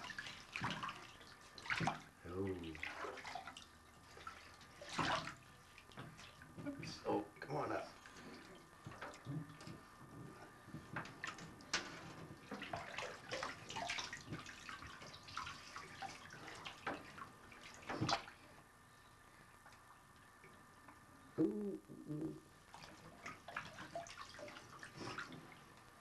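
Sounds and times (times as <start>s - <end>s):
bathwater splashing: 0.0s - 6.6s, 10.8s - 18.6s, 22.6s - 26.0s.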